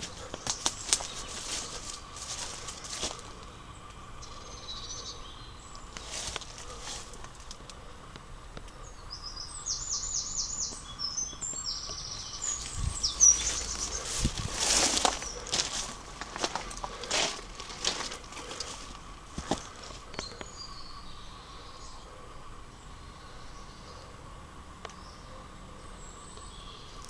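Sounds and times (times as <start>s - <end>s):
footsteps through undergrowth: 0.0s - 3.6s, 5.7s - 7.6s, 12.2s - 20.4s
songbird singing: 0.0s - 27.0s.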